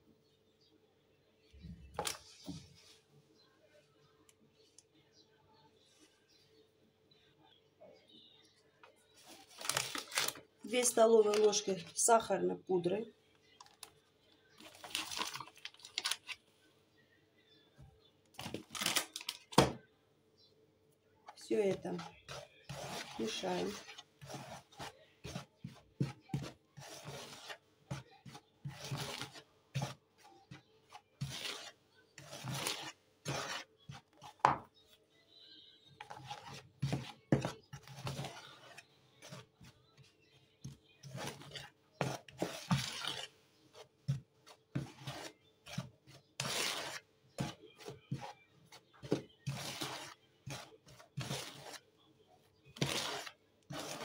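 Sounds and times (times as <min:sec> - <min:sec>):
whisk scraping in plastic bowl: 0:21.4 - 0:34.9, 0:35.9 - 0:51.9, 0:52.5 - 0:54.0.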